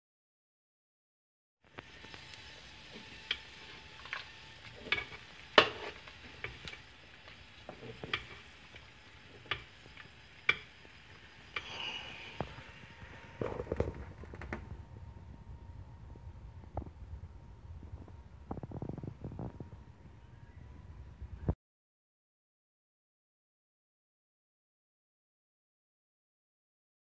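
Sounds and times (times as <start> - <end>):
wood fire crackling: 1.7 - 20.0.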